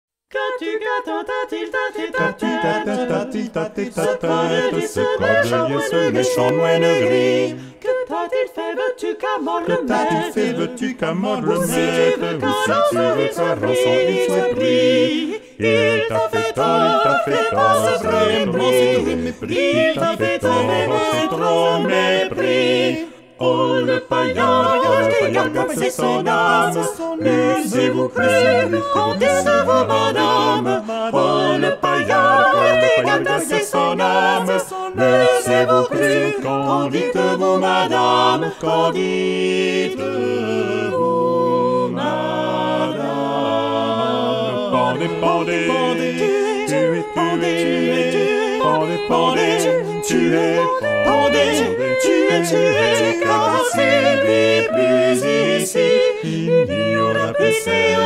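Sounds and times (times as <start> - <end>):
vocal quartet singing a cappella: 0.3 - 58.0
singers breathing: 7.5 - 7.8.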